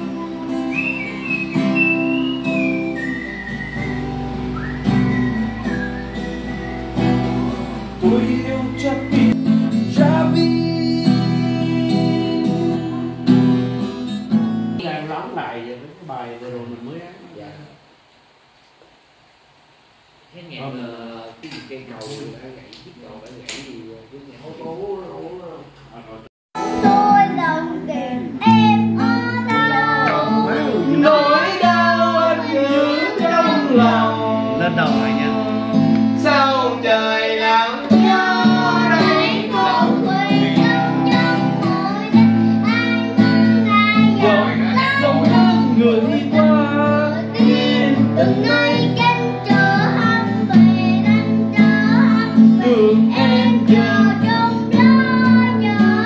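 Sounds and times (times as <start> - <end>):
strummed acoustic guitar: 0.0 - 14.8, 26.6 - 56.0
boy singing: 8.0 - 13.4, 26.6 - 56.0.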